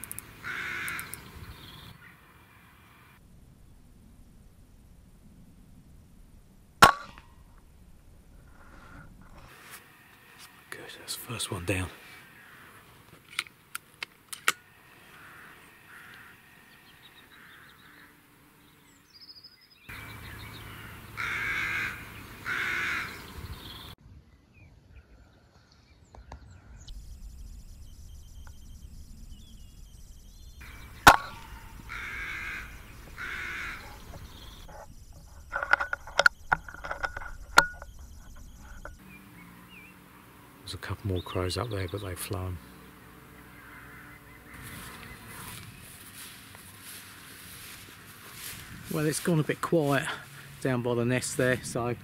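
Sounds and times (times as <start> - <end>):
crows cawing: 0.4 - 1.2, 11.7 - 13.1, 14.6 - 18.4, 19.9 - 23.3, 30.6 - 34.8, 43.1 - 49.0
air rifle shot: 31.0 - 31.7.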